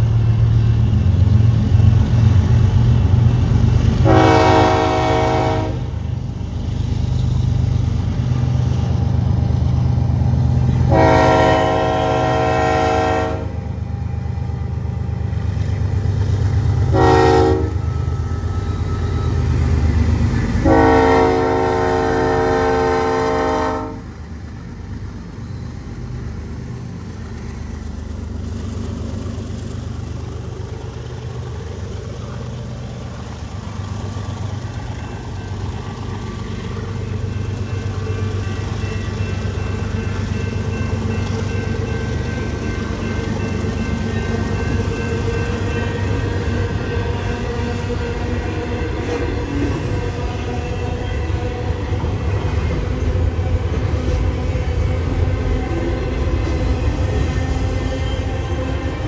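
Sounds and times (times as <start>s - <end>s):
low rumble of passing train: 0.0s - 59.0s
train horn blasts: 4.0s - 6.0s, 10.8s - 13.7s, 16.9s - 19.3s, 20.5s - 24.2s.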